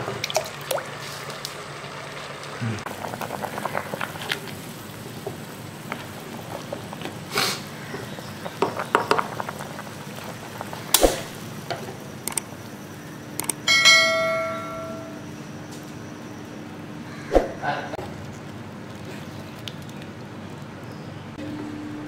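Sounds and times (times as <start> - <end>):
water boiling in a pot: 0.0 - 13.4, 18.0 - 21.3
notification bell ding: 13.7 - 15.2.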